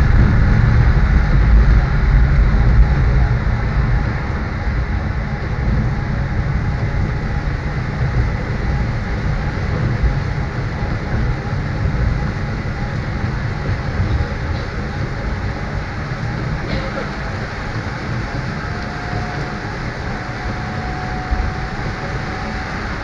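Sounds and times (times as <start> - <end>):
rain hissing: 0.0 - 23.0
tram rumbling: 0.0 - 23.0.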